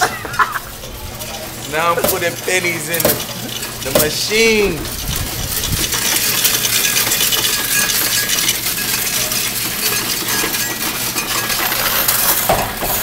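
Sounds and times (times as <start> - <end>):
coins rattling through machine: 0.7 - 13.0.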